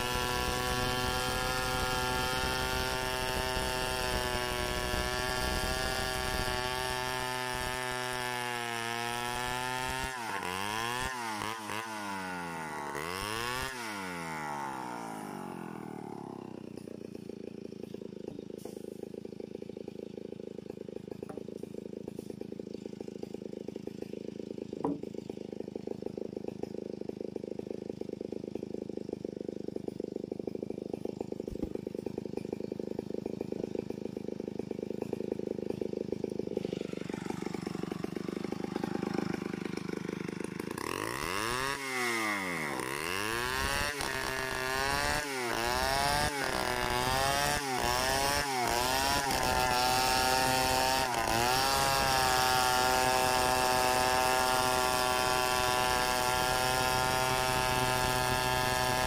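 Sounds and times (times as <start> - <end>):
chainsaw cutting log: 0.0 - 59.0
chainsaw idling and revving: 0.0 - 59.0.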